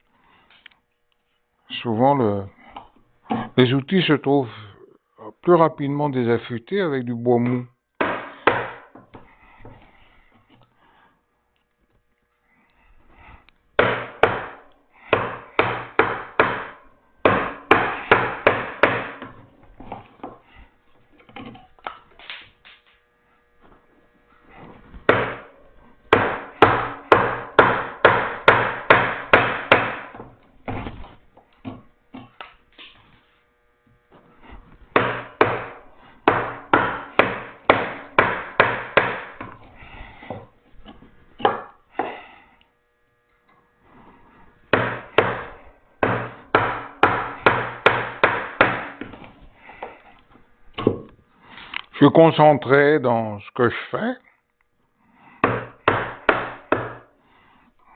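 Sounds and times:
chisel strikes on wood: 0:08.0 - 0:09.8, 0:13.8 - 0:20.4, 0:25.0 - 0:25.5, 0:26.1 - 0:30.9, 0:31.6 - 0:32.6, 0:34.9 - 0:39.6, 0:41.4 - 0:42.2, 0:44.7 - 0:50.0, 0:50.8 - 0:51.2, 0:55.4 - 0:57.1.

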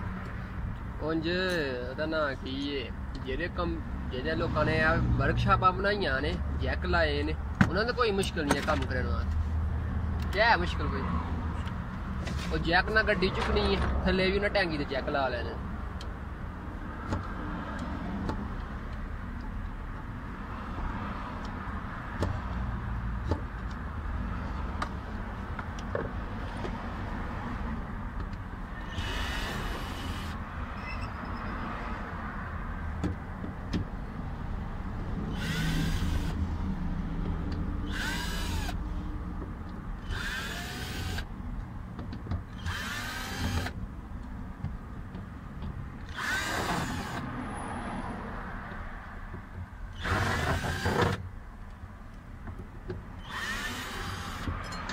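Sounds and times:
power drill whining: 0:28.8 - 0:30.4, 0:35.4 - 0:36.4, 0:37.9 - 0:38.8, 0:40.0 - 0:41.2, 0:42.6 - 0:43.7, 0:46.1 - 0:47.2, 0:50.0 - 0:51.2, 0:53.2 - 0:54.5
hand tools clicking and scraping: 0:52.1 - 0:54.9.

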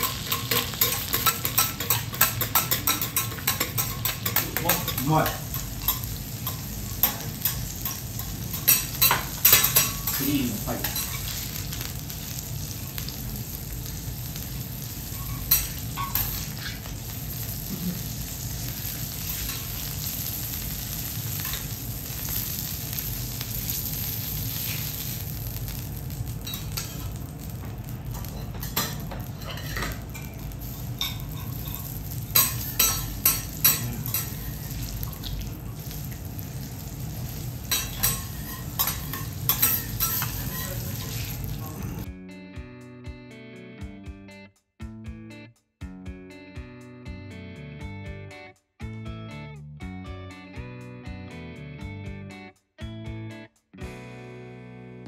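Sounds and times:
metal spatulas clinking and scraping: 0:00.0 - 0:11.4, 0:15.1 - 0:16.9, 0:19.2 - 0:20.0, 0:28.2 - 0:35.2, 0:37.6 - 0:41.5
steak sizzling on griddle: 0:00.0 - 0:42.1.

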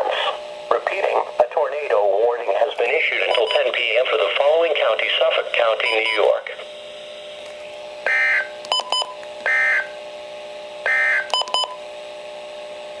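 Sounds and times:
radio button beeps: 0:03.3 - 0:03.6, 0:05.8 - 0:06.3, 0:08.1 - 0:09.9, 0:10.9 - 0:11.8
digital data bursts: 0:03.3 - 0:03.7.

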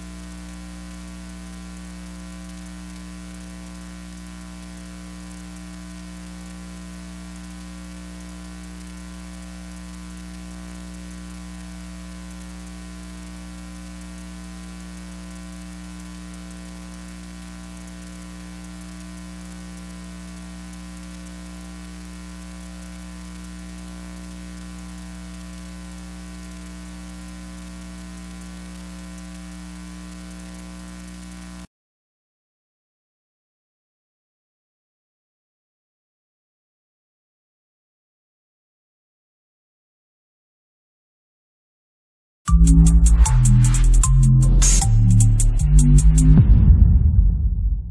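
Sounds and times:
electrical hum with hiss: 0:00.0 - 0:31.7, 0:42.5 - 0:46.4.

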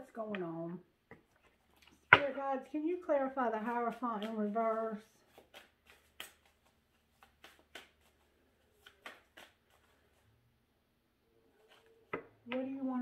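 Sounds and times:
cards being shuffled by hand: 0:01.2 - 0:02.4, 0:03.5 - 0:10.4, 0:11.5 - 0:12.3.

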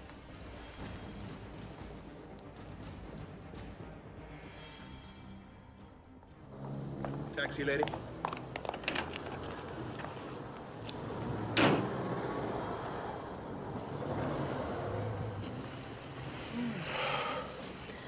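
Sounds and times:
car engine idling: 0:06.4 - 0:16.4.

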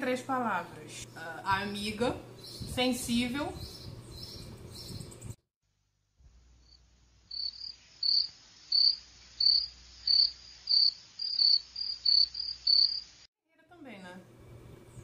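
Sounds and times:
crickets chirping: 0:06.6 - 0:13.3.

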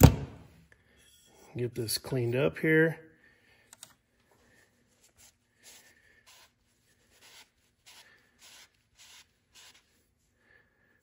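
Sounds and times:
cloth rag wiping: 0:04.8 - 0:10.4.

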